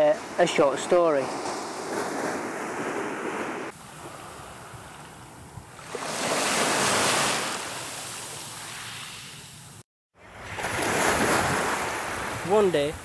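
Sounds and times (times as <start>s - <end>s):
small waves breaking on beach: 0.1s - 5.1s, 5.8s - 9.5s, 10.2s - 13.0s
wind on microphone: 1.4s - 6.0s, 10.3s - 13.0s.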